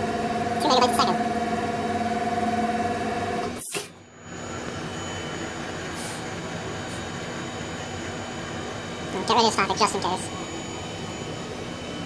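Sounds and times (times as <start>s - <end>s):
low machine hum: 0.0s - 12.0s
electric motor whine: 4.2s - 12.0s.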